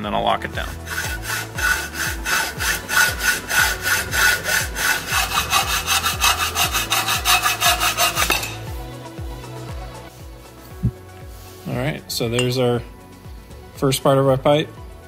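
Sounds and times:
hacksaw cutting metal pipe: 0.6s - 8.7s.

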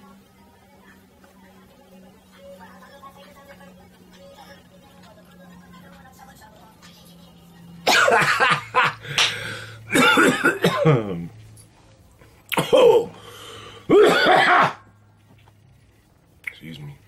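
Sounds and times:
man coughing: 7.9s - 9.3s, 9.9s - 11.3s, 12.5s - 13.2s, 13.9s - 14.8s.

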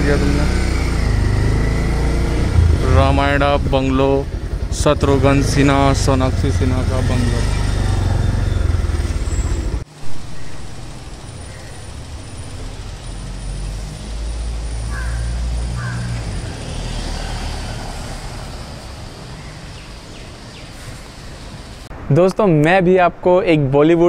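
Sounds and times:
vehicle engine humming: 0.0s - 21.9s.

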